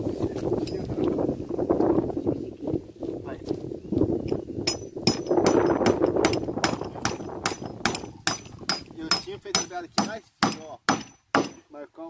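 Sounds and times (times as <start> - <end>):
hammer hitting nail into wood: 4.7 - 11.6.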